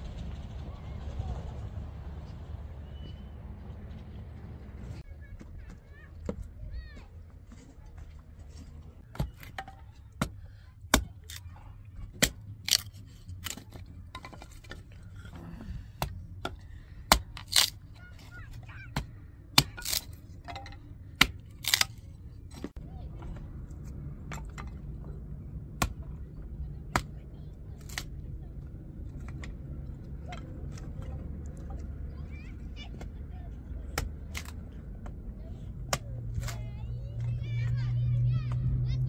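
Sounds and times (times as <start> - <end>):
hatchet chopping firewood: 9.0 - 22.8, 25.7 - 26.2, 27.8 - 28.2, 33.9 - 35.2, 35.9 - 36.6.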